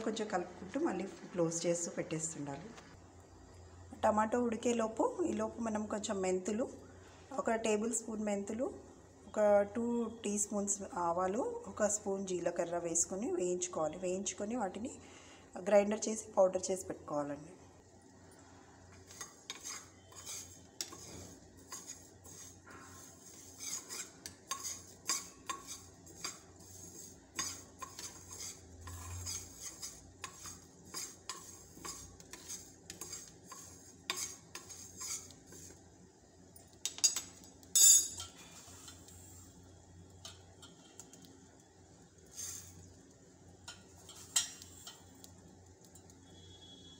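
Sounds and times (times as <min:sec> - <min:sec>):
metal spoon scraping steel pan: 0:18.9 - 0:35.8, 0:36.8 - 0:39.3, 0:42.3 - 0:42.8, 0:43.7 - 0:45.1.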